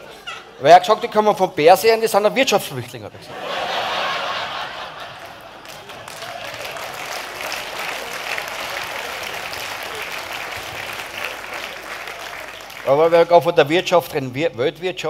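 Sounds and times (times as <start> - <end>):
audience clapping: 4.6 - 13.5.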